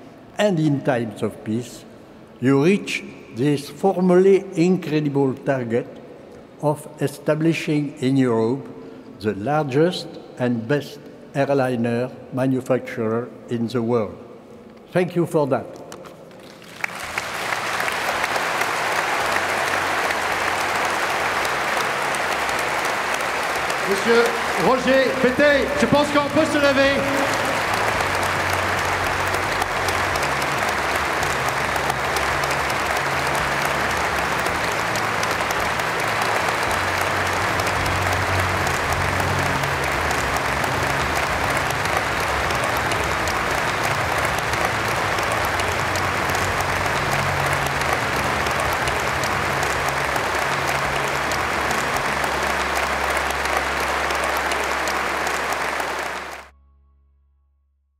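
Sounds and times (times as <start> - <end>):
large audience applauding: 16.3 - 56.5.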